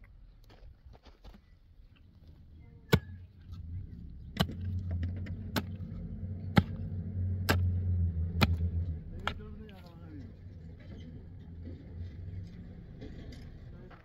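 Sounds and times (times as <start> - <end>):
low steady hum: 0.0 - 14.0
pick striking stony soil: 4.3 - 7.8, 8.4 - 10.0.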